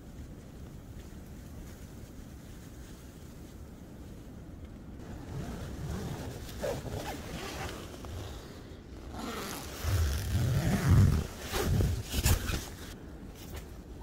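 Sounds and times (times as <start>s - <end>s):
tent zipper pulled open: 5.0s - 13.0s
tent fabric rustling: 5.0s - 14.0s.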